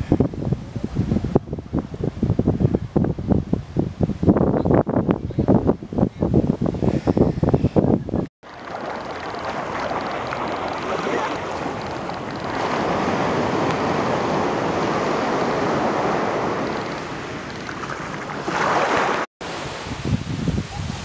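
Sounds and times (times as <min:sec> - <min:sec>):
waves washing onto beach: 0:08.4 - 0:20.9.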